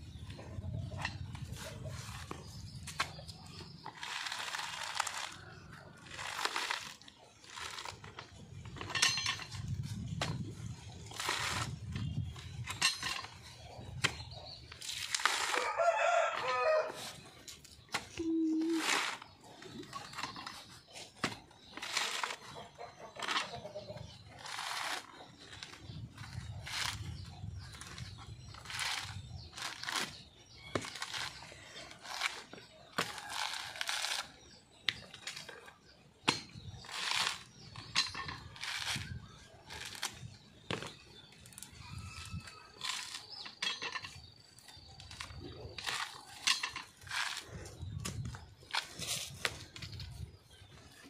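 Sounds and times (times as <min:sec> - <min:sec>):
coconut husk ripping and cracking: 0:03.5 - 0:08.3, 0:11.0 - 0:11.8, 0:14.8 - 0:16.1, 0:21.7 - 0:22.4, 0:24.4 - 0:35.7, 0:36.8 - 0:37.7, 0:38.5 - 0:43.4, 0:44.6 - 0:49.1
rooster crowing: 0:15.6 - 0:17.0.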